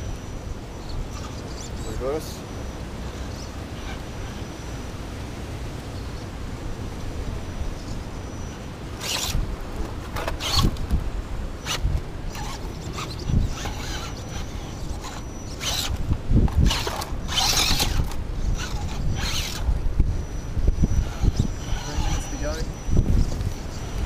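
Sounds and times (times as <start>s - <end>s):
electric motor and gears whirring: 0.0s - 6.1s, 7.3s - 24.0s
tyres scrabbling on rock: 9.0s - 11.0s, 11.6s - 19.8s.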